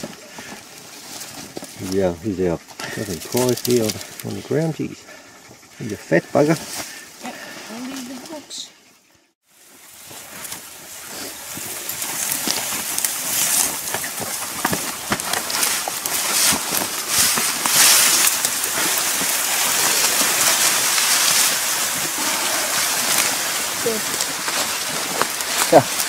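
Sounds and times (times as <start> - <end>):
grass brushing against clothes: 0.0 - 5.0, 9.5 - 26.0
twigs snapping: 3.1 - 4.3, 11.5 - 26.0.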